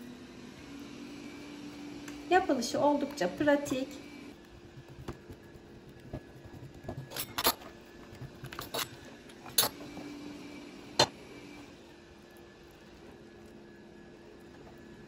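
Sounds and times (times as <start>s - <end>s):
hands working dough: 3.0s - 10.2s.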